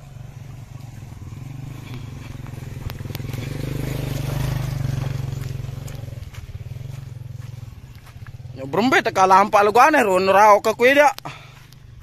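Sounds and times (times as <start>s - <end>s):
small motorcycle engine labouring: 0.0s - 9.5s.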